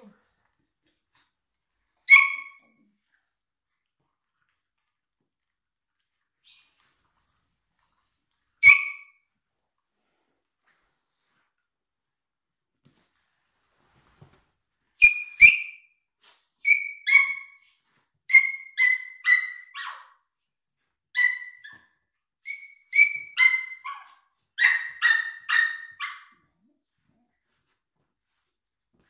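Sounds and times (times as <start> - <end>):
dog whining and yipping: 16.6 - 20.1, 22.4 - 26.3.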